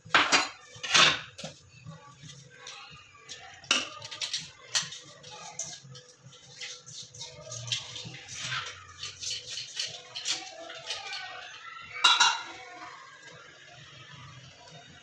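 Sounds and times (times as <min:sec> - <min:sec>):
metal utensil clinking on pot: 0:00.0 - 0:01.6, 0:03.6 - 0:11.4, 0:12.0 - 0:12.6.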